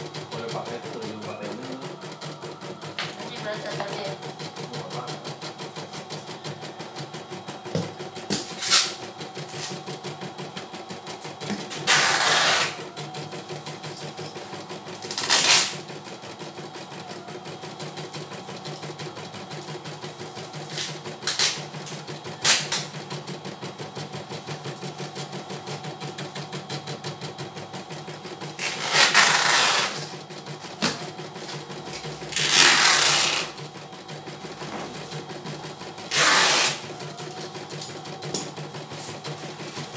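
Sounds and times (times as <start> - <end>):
embroidery machine stitching: 0.0 - 39.9.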